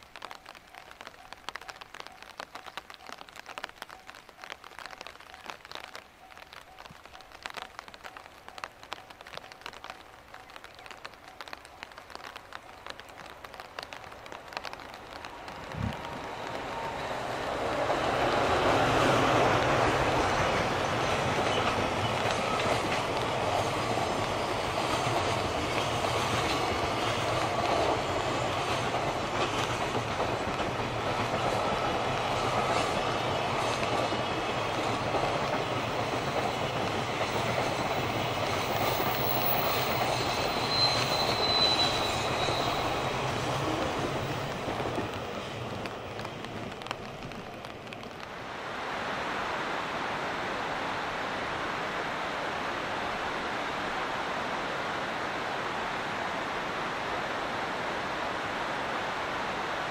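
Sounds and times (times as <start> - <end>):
freight train rolling on rails: 0.0 - 48.3
high wheel squeal: 39.4 - 43.2.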